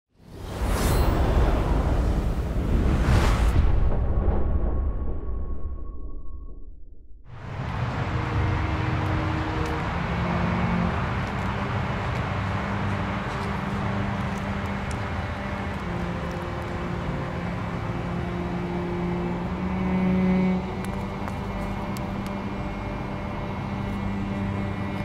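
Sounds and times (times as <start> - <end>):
freeway traffic drone: 7.3 - 25.0.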